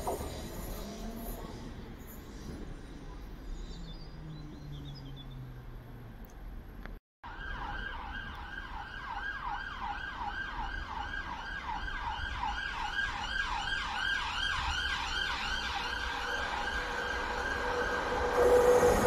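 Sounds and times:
siren yelp: 0:07.2 - 0:19.0.

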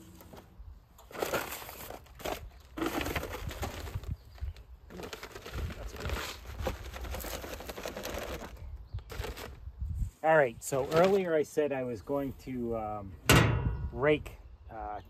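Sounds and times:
plastic wrapper crinkling: 0:01.1 - 0:09.6.

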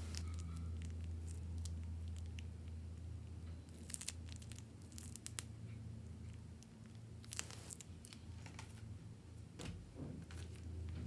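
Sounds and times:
plastic piping bag crinkling: 0:00.0 - 0:02.6, 0:03.7 - 0:05.6, 0:06.3 - 0:08.6
steady low hum: 0:00.0 - 0:11.0.

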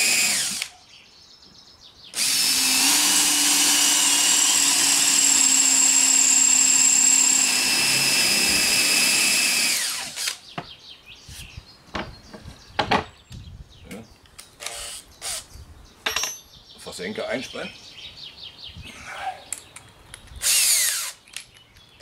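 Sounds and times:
cordless drill whining: 0:00.0 - 0:00.7, 0:02.2 - 0:10.4, 0:20.4 - 0:21.2.

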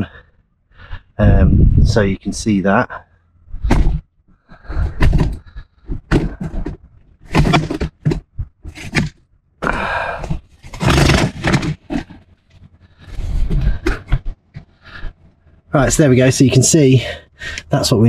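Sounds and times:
camera handling scrapes and knocks: 0:04.8 - 0:09.2.

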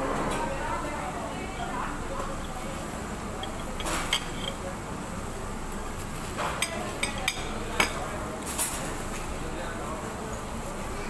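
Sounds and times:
steady background noise: 0:00.0 - 0:11.0
cutlery and dishes clinking: 0:03.4 - 0:04.7, 0:06.2 - 0:09.0.

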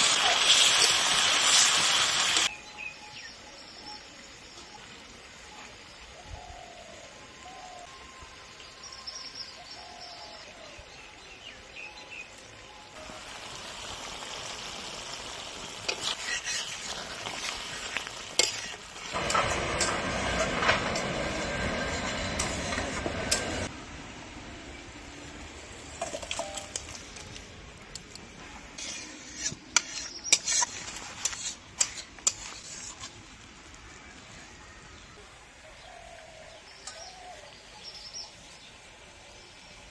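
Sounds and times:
food sizzling: 0:00.0 - 0:02.5, 0:08.0 - 0:35.3
spatula scraping wok: 0:14.0 - 0:23.7, 0:28.7 - 0:33.5.

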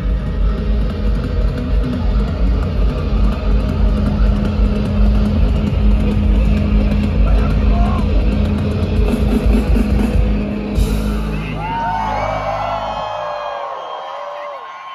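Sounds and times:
live rock music: 0:00.0 - 0:13.6
crowd noise: 0:00.0 - 0:14.9
crowd whoops: 0:11.2 - 0:14.9.

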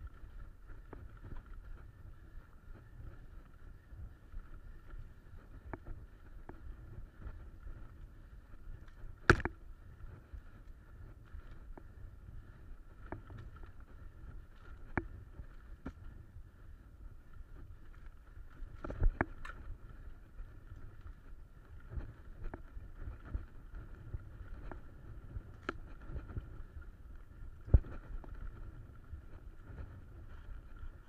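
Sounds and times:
bike rolling over dirt trail: 0:00.0 - 0:31.0
bike knocks and rattles: 0:09.1 - 0:09.6, 0:18.5 - 0:19.8.

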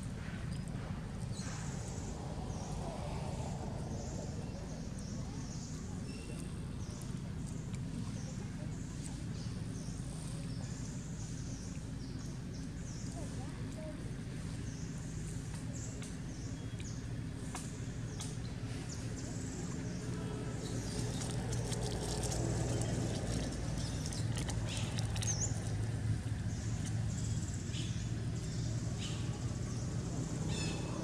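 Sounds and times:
steady low hum: 0:00.0 - 0:31.0
birds chirping: 0:00.2 - 0:31.0
dry leaves rustling: 0:19.0 - 0:27.1.

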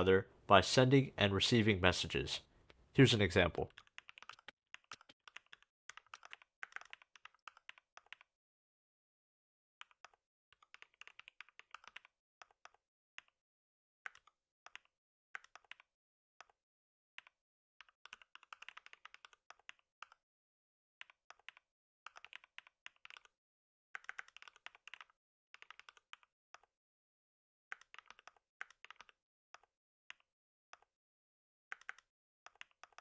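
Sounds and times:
typing on a keyboard: 0:03.7 - 0:08.3, 0:09.8 - 0:13.4, 0:14.1 - 0:16.6, 0:17.2 - 0:20.2, 0:21.0 - 0:23.4, 0:24.0 - 0:26.7, 0:27.7 - 0:30.9, 0:31.7 - 0:33.0.

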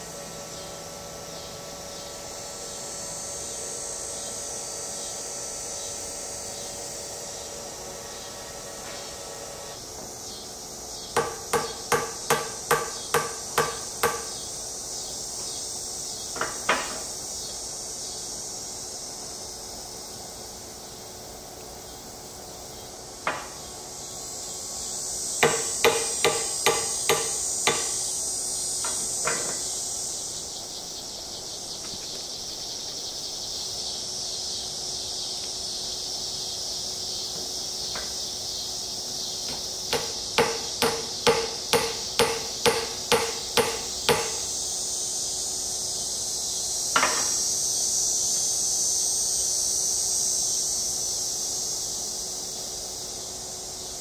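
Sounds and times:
hammer tapping steel pins: 0:11.2 - 0:14.4, 0:25.4 - 0:28.0, 0:39.9 - 0:44.4.

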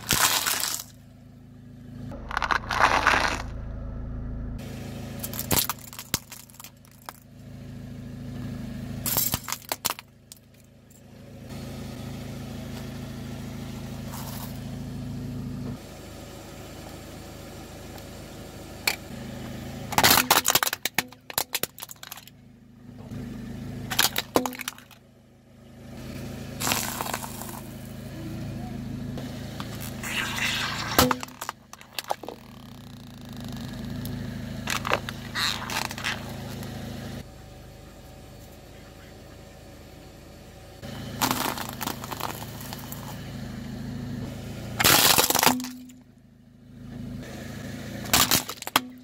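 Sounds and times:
tyre crushing brittle snacks: 0:00.0 - 0:00.9, 0:02.2 - 0:03.5, 0:05.2 - 0:07.2, 0:09.1 - 0:10.1, 0:20.0 - 0:22.3, 0:23.9 - 0:25.0, 0:26.6 - 0:27.7, 0:29.6 - 0:32.7, 0:34.7 - 0:36.4, 0:41.2 - 0:43.1, 0:44.8 - 0:46.0, 0:48.1 - 0:49.0
car engine running: 0:00.0 - 0:49.0.

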